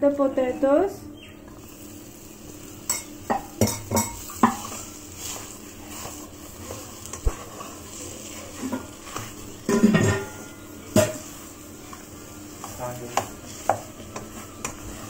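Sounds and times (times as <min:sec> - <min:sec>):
faint sizzle: 0:00.0 - 0:15.0
wooden spatula scraping a pan: 0:01.6 - 0:15.0.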